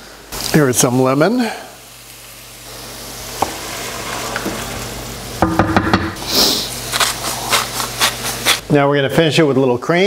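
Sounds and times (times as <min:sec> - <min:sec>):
sauce sizzling in a skillet: 0:00.1 - 0:08.6
wooden spoon knocking against pan: 0:05.4 - 0:06.2.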